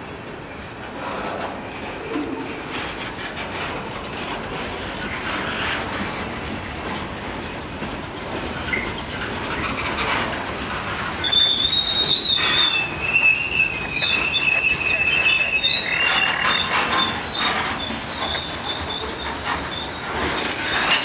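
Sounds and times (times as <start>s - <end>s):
train wheels rumbling on rail: 0.0s - 21.0s
wheel squealing: 8.6s - 21.0s.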